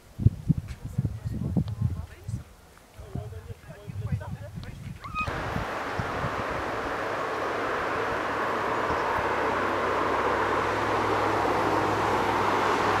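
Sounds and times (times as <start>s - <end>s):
steady rushing noise: 5.3s - 13.0s.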